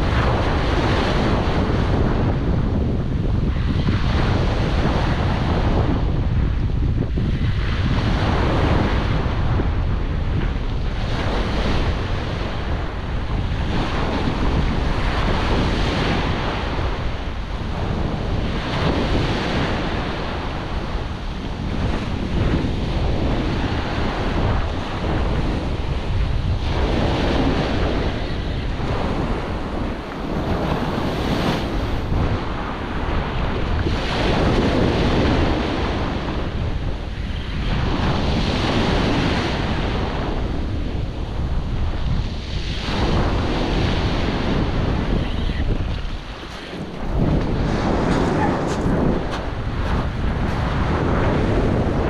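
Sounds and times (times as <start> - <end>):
wind rumbling on microphone: 0.0 - 52.0
waves washing over pebbles: 10.8 - 37.0.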